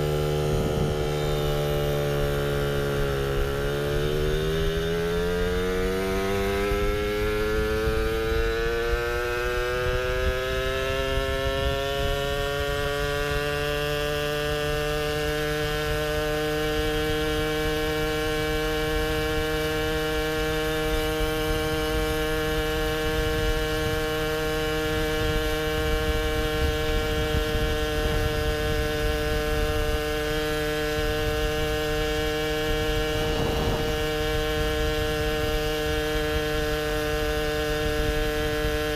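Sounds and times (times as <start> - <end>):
low wind rumble: 0.0 - 12.9, 20.8 - 38.9
moped two-stroke engine accelerating: 0.0 - 38.9.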